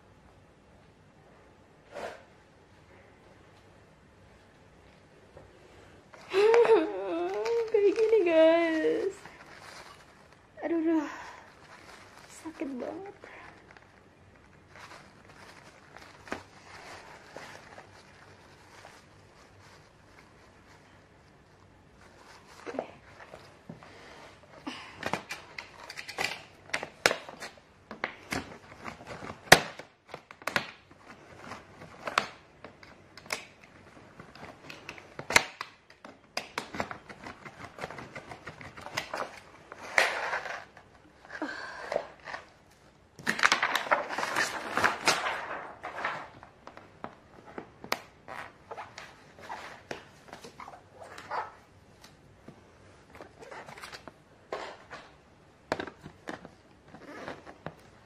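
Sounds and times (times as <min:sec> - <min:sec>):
plastic film crinkling: 0:06.1 - 0:23.7, 0:42.1 - 0:52.2.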